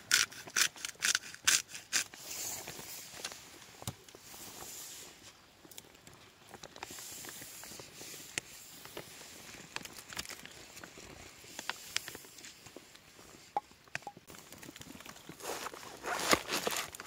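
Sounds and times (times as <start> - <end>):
herb leaves being stripped: 14.5 - 17.0.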